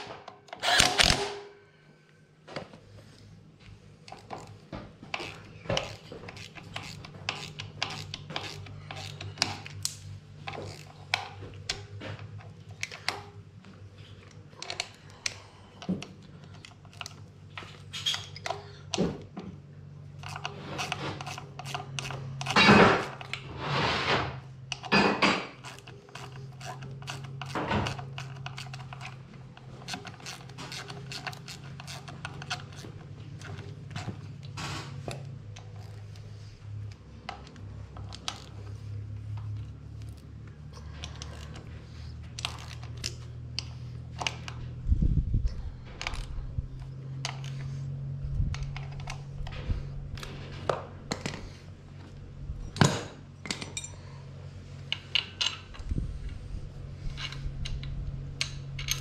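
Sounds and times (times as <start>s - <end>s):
steady low hum: 0.0s - 59.0s
metal scrapes: 20.2s - 35.1s
metal tools clinking: 52.6s - 59.0s.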